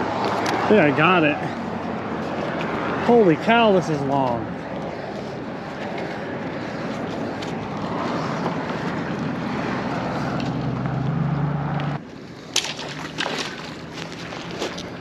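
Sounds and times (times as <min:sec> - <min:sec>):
engine hum: 0:00.0 - 0:15.0
road traffic rushing: 0:00.0 - 0:15.0.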